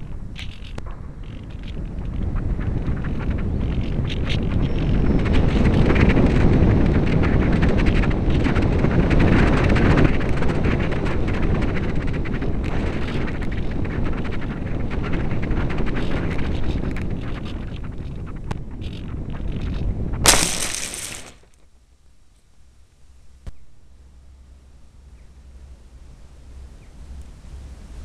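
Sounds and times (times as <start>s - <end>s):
wind noise rumble: 0.0s - 21.5s.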